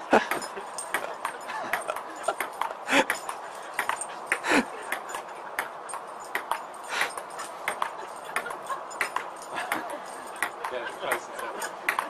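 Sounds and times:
ping-pong ball hitting table: 0.4 - 12.0.

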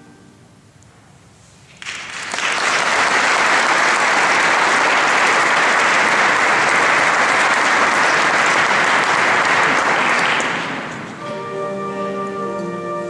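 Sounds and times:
audience applauding: 1.7 - 11.2.

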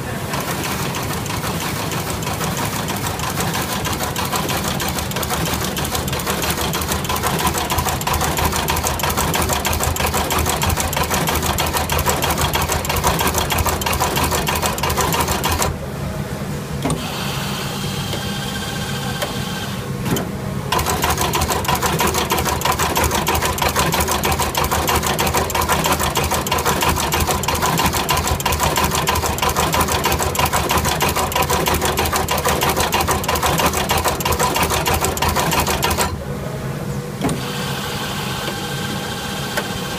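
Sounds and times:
machine mechanical clatter: 0.2 - 15.8, 20.0 - 36.2.

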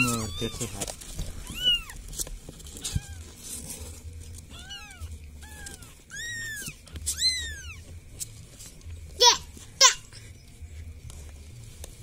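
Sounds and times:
kittens mewing: 0.0 - 2.1, 4.4 - 7.9.

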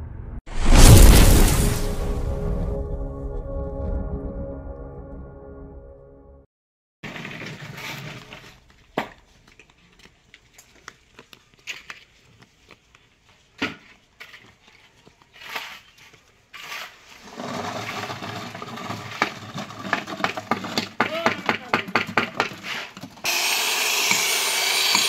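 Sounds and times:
concrete scraping in steel pans: 7.0 - 9.7, 13.7 - 23.2
concrete pouring into formwork: 16.6 - 22.9.

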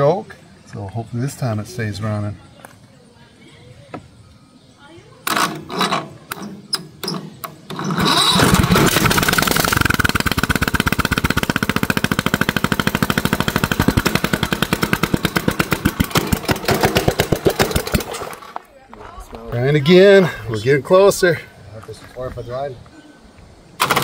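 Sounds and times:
lawn mower engine starting: 5.2 - 18.6, 23.8 - 24.0.

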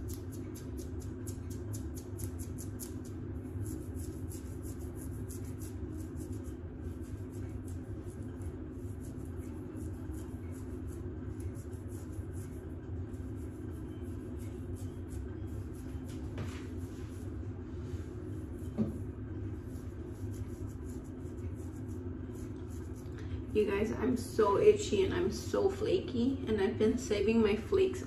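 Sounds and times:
fingernails scratching scalp: 0.0 - 17.3, 19.6 - 23.0.

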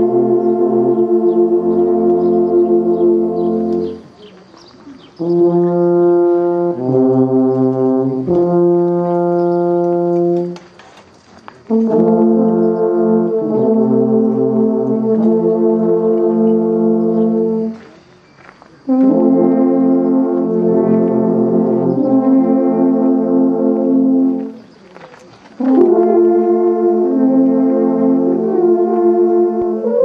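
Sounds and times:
alphorns playing in harmony: 0.0 - 4.2, 5.2 - 10.6, 11.7 - 17.9, 18.9 - 24.7, 25.6 - 30.0.

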